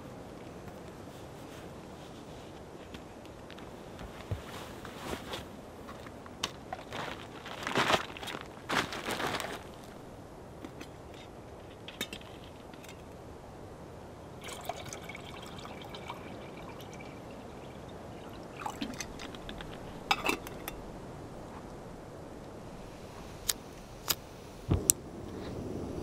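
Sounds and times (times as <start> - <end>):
water pouring into metal pot: 14.4 - 20.7.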